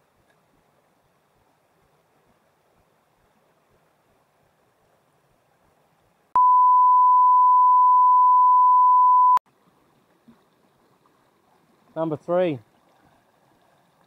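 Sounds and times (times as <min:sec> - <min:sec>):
electronic beep: 0:06.4 - 0:09.4.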